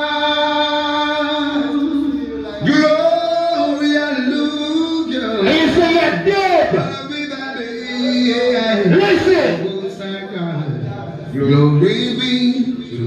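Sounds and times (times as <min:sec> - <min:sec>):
man singing long notes: 0:00.0 - 0:13.0.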